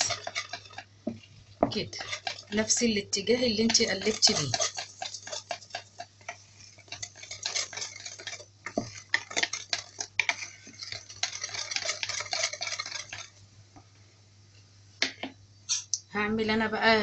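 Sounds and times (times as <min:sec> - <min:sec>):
whisk stirring batter in bowl: 0:00.0 - 0:13.5.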